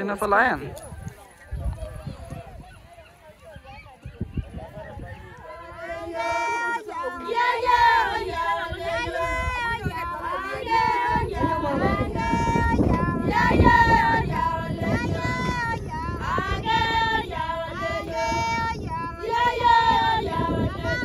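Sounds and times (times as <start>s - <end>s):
women singing together: 4.8s - 21.0s.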